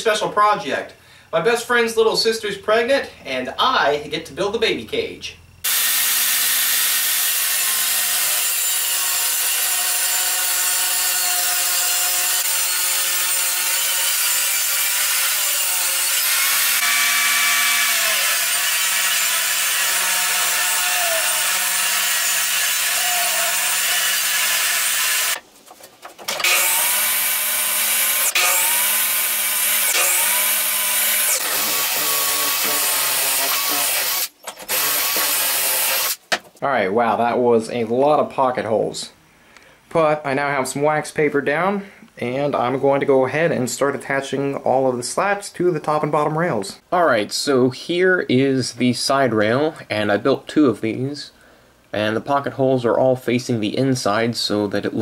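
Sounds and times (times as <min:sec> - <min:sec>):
cordless drill boring: 0:05.6 - 0:25.4, 0:26.3 - 0:36.2
table saw ripping boards: 0:05.6 - 0:25.5, 0:26.1 - 0:36.4.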